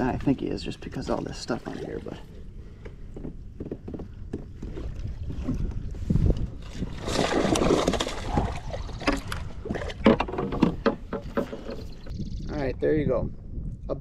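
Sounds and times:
fish splashing at surface: 7.0 - 9.8.

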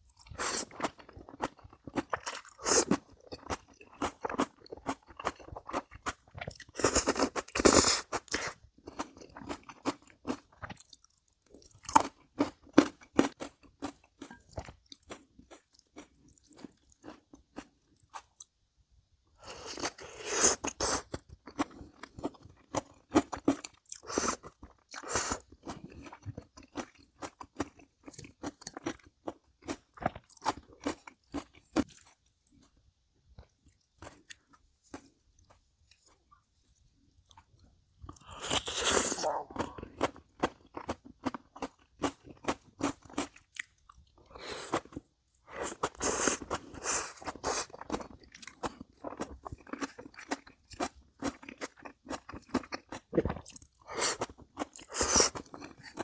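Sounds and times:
person chewing crunchy food: 0.1 - 18.6, 19.4 - 56.0.

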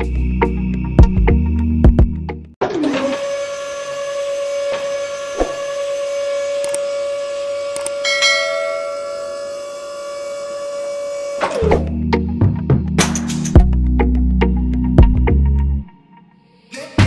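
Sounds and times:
small motor whining: 2.6 - 11.7
higher motor whine: 2.8 - 12.0.

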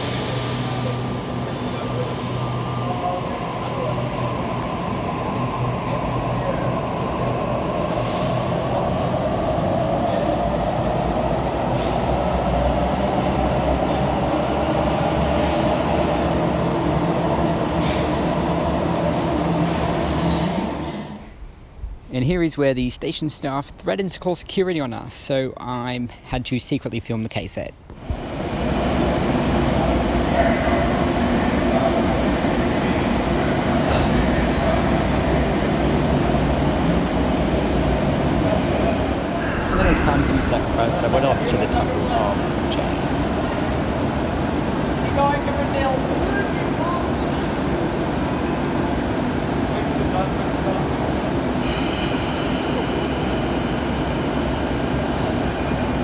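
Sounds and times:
train rumbling: 27.9 - 56.0
mid-pitched hum: 39.0 - 43.6.

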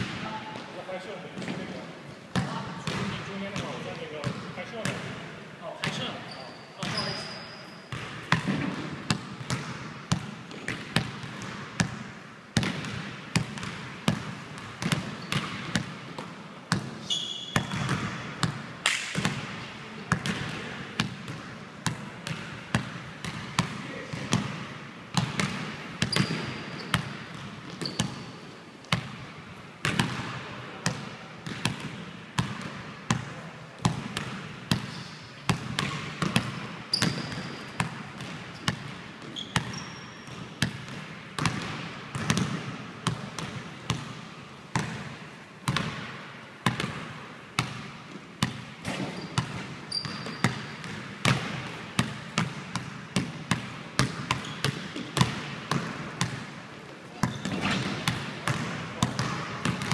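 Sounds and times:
basketball bouncing on wooden floor: 2.3 - 5.1, 7.9 - 18.6, 19.2 - 28.2, 28.9 - 56.5, 57.2 - 59.9
shoe squeaks: 6.2 - 8.0, 17.0 - 17.8, 26.1 - 27.0, 27.8 - 28.1, 36.9 - 37.8, 39.3 - 40.3, 48.9 - 50.6, 54.4 - 54.7, 57.2 - 57.9.

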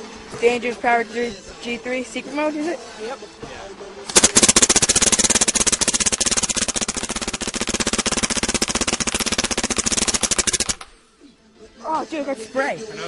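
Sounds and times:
paintball marker rapid firing: 4.1 - 10.9.

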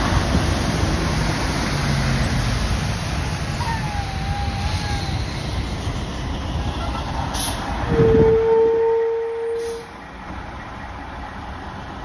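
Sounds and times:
tyres hissing on wet pavement: 0.0 - 7.9, 9.4 - 10.2
diesel engine rumble: 0.0 - 12.0
short hiss: 9.6 - 9.9.

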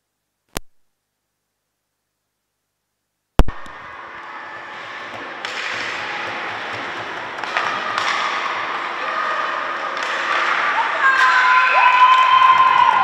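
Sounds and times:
ice hockey play on ice: 3.8 - 13.0
spectators shouting: 3.8 - 13.0.

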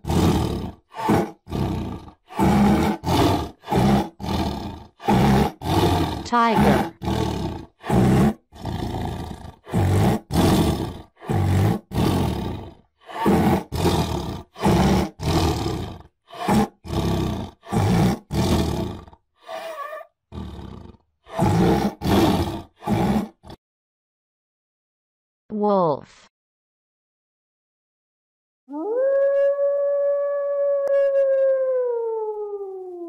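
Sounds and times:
tiger roaring and growling: 0.0 - 23.6.

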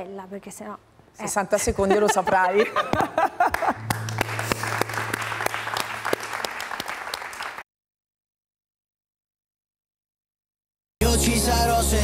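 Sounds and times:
audience applauding: 3.4 - 7.6.

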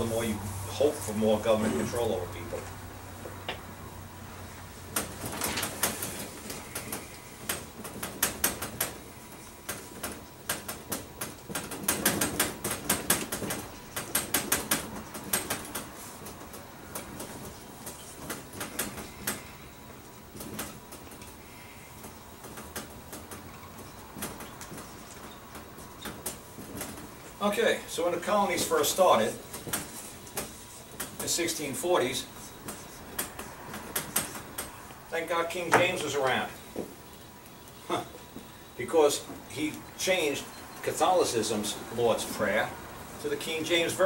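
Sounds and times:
marker squeaking on whiteboard: 32.4 - 34.9.

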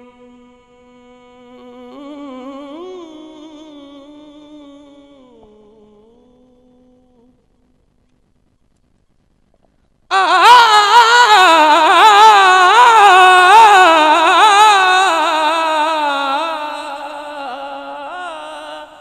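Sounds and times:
man singing a held note: 0.0 - 7.7, 10.1 - 19.0.

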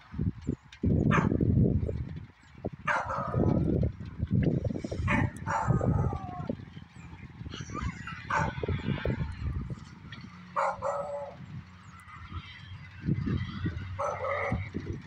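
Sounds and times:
wind buffeting microphone: 0.0 - 15.0
animal calls: 5.0 - 6.6, 7.4 - 9.4, 10.5 - 11.5, 13.2 - 14.8.

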